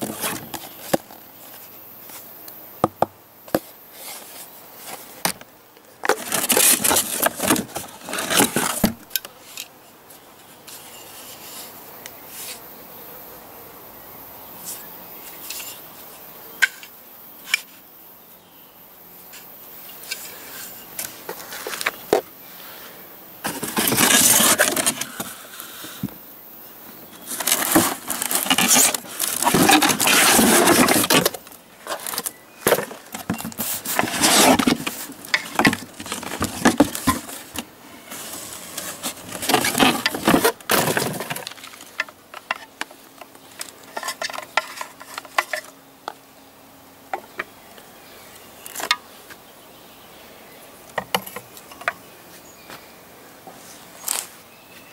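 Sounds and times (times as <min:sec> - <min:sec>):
cardboard rustling and tearing: 0:00.0 - 0:01.1, 0:06.1 - 0:09.1, 0:23.4 - 0:25.3, 0:27.2 - 0:42.0.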